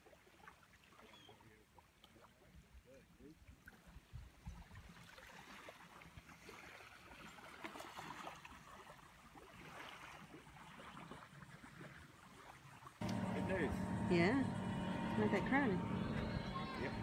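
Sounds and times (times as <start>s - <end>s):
small waves lapping: 0.0s - 17.0s.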